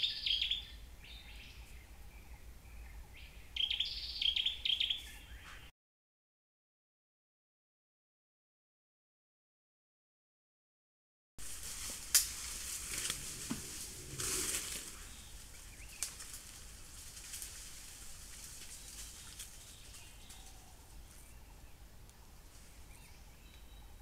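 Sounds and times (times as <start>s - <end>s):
faint forest background: 0.0s - 5.7s, 11.4s - 24.0s
branches snapping: 11.4s - 20.5s
rustling dry leaves and brush: 11.4s - 23.4s.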